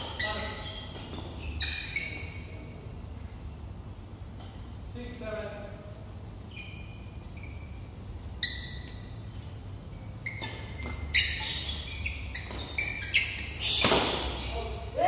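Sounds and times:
shoe soles squeaking on court: 0.0 - 3.6, 6.3 - 14.9
racket hitting shuttlecock: 13.5 - 14.5.

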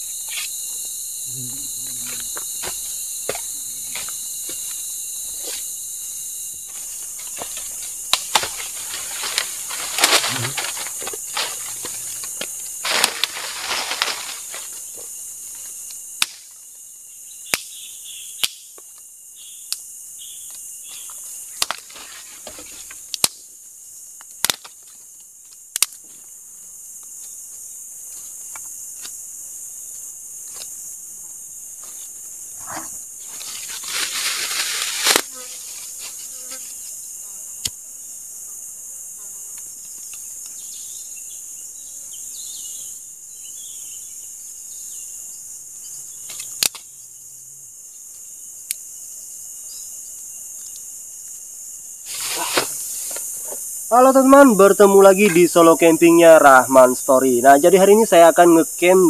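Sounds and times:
forest insects chorus: 0.0 - 59.0
blade chopping wooden stakes: 6.7 - 14.7, 24.4 - 24.9, 33.4 - 35.4
rustling in leaf litter: 6.8 - 14.9, 33.2 - 36.4, 52.1 - 53.1.

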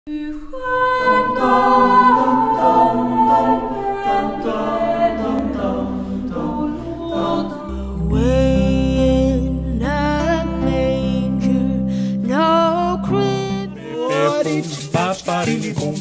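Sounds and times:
mixed choir singing a cappella: 0.1 - 8.8, 13.9 - 16.0
woman singing: 0.1 - 14.5
low accompaniment: 0.3 - 16.0.

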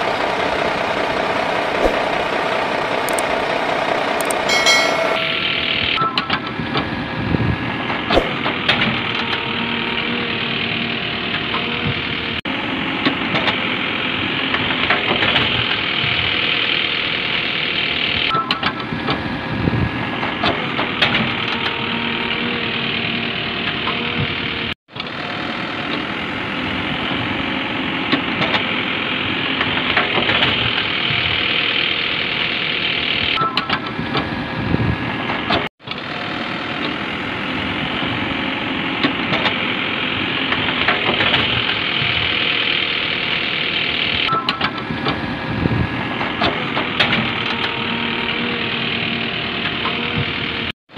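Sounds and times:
engine running: 0.0 - 50.7.

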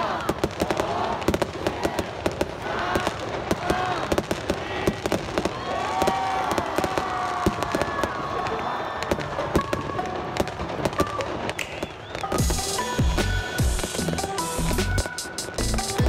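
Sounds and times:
people shouting: 0.0 - 11.5
fireworks bangs and crackles: 0.0 - 16.0
music: 10.1 - 16.0.

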